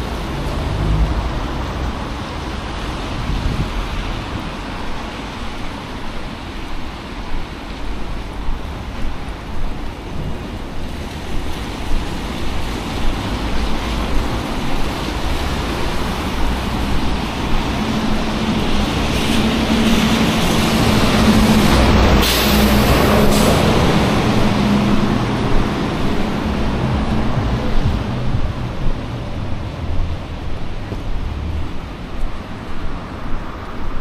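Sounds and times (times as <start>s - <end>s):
heavy vehicle engine hum: 0.0s - 34.0s
street traffic noise: 0.0s - 34.0s.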